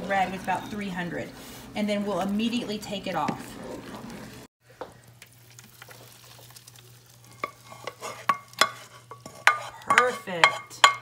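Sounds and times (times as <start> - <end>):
toffee pouring and stirring: 2.3 - 10.3
cookware clinking: 7.4 - 11.0.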